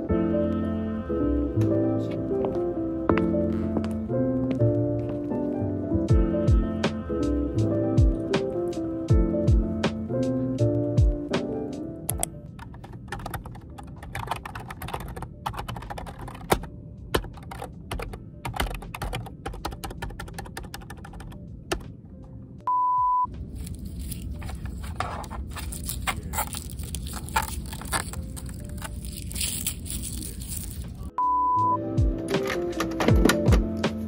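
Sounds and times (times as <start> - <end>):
fast typing on keyboard: 12.6 - 21.8
short steady beep: 22.7 - 23.3, 31.2 - 31.8
plastic wrap crinkling: 23.5 - 31.1.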